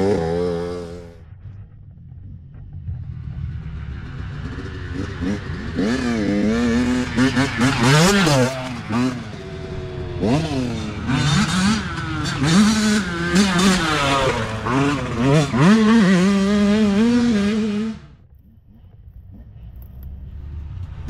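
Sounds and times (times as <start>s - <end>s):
dirt bike engine revving: 0.0s - 1.4s, 2.9s - 18.2s.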